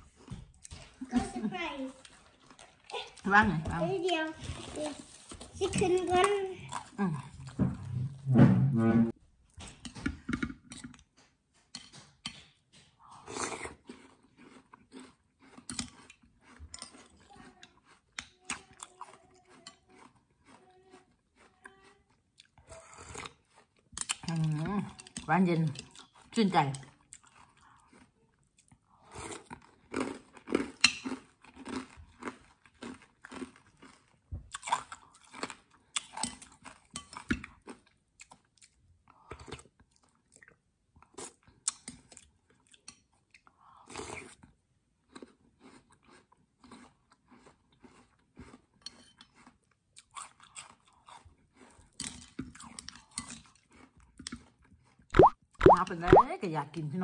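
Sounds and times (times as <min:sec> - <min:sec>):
crunchy chewing: 0:12.8 - 0:55.3.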